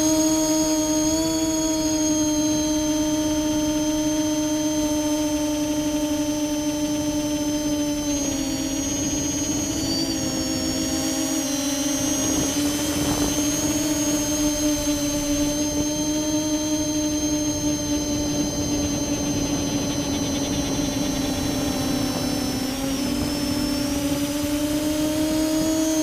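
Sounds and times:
drone propellers humming: 0.0s - 26.0s.

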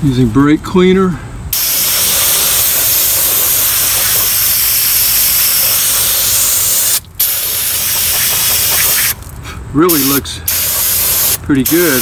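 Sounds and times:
aerosol spray hissing: 1.6s - 9.2s, 9.9s - 12.0s.

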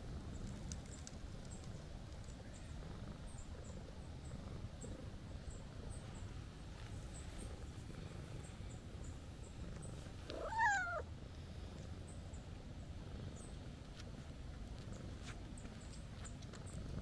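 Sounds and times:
cat purring: 0.0s - 13.8s, 14.4s - 17.0s
cat meowing: 10.3s - 11.0s.

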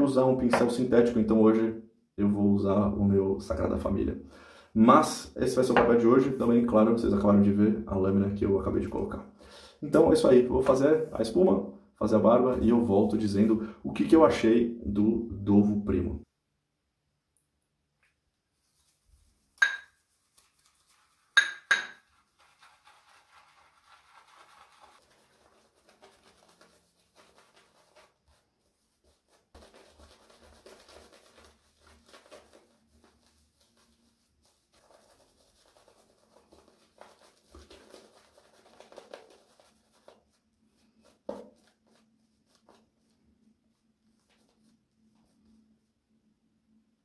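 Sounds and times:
shaving brush swishing and scratching: 18.6s - 21.4s, 22.0s - 45.9s.

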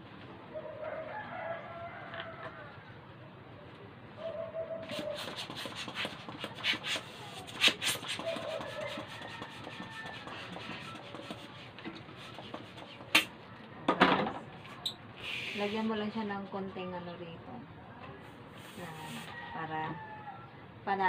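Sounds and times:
balloon rubbing squeak: 4.8s - 11.5s
latex balloon rubbing: 4.9s - 13.3s
hand pump strokes and clicks: 5.2s - 13.3s.

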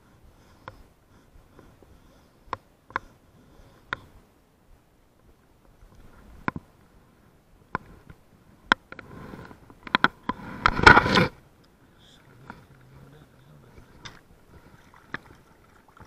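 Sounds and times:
fish splashing and thrashing: 13.8s - 16.0s.

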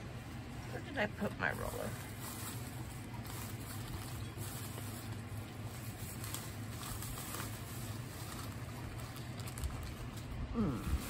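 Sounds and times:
low steady hum: 0.0s - 11.0s
rummaging knocks and rustles: 1.7s - 10.3s.

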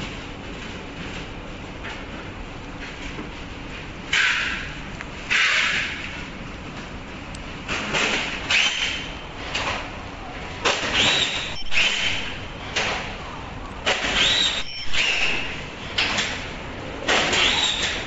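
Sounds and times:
film squeaking: 14.0s - 15.7s.

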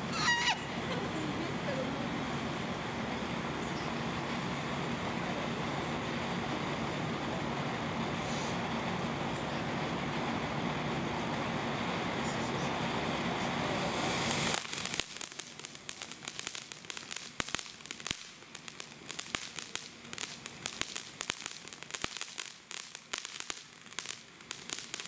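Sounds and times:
firework fountain hissing: 0.0s - 25.0s
firework crackling pops: 11.2s - 25.0s.

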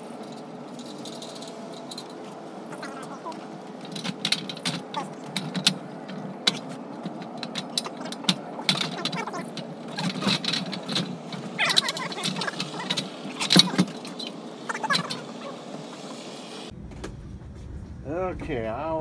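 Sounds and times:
metal clicks knocks and rattles: 0.2s - 14.3s
metal squeaking on metal: 0.8s - 16.3s.

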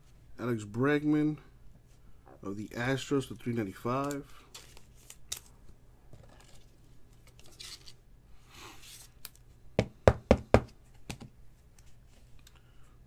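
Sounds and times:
plastic card sleeve rustling: 4.0s - 8.0s
plastic card holders knocking on table: 9.8s - 11.3s.

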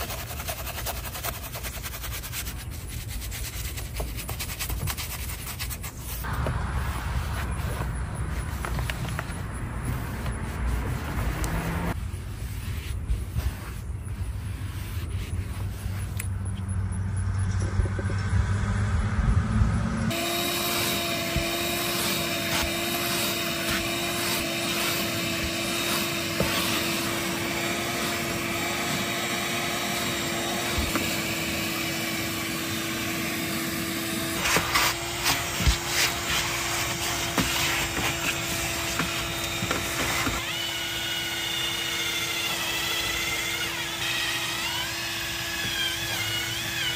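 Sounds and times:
low rumble: 16.6s - 20.1s
small motor humming: 20.1s - 46.9s.

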